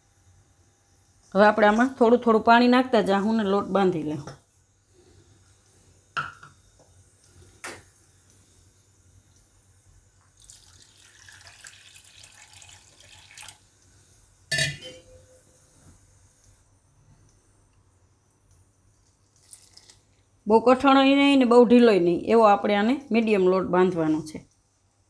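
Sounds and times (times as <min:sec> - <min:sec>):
water pouring into plastic cup: 0:10.3 - 0:13.7, 0:19.3 - 0:20.1.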